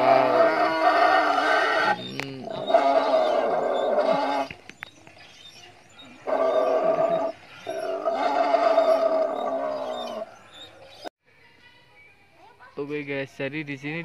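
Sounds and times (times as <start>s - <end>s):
recorded dinosaur roars: 0.0s - 4.5s.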